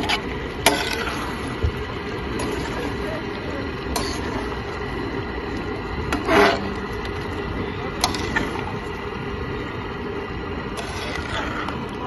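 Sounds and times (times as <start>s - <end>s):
spatula clinking on griddle: 0.7s - 1.2s.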